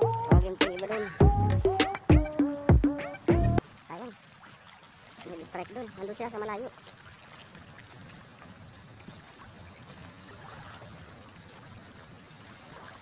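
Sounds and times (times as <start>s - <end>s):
water lapping: 0.0s - 2.3s, 3.4s - 13.0s
wind on microphone: 7.3s - 13.0s.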